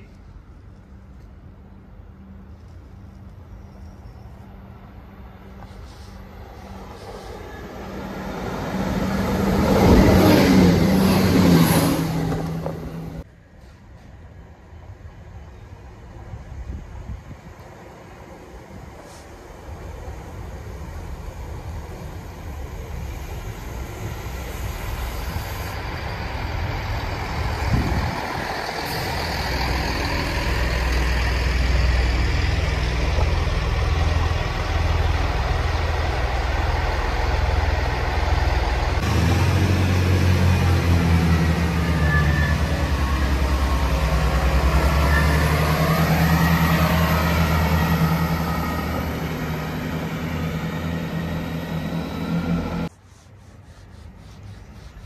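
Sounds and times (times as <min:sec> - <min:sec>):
train wheels on rails: 0:05.5 - 0:14.3, 0:18.4 - 0:52.9
diesel engines drumming: 0:25.8 - 0:52.9.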